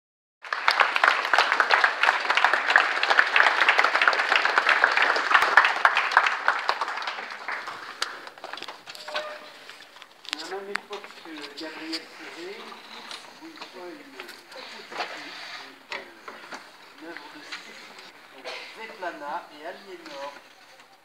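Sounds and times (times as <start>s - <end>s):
audience applauding: 0.4s - 9.2s.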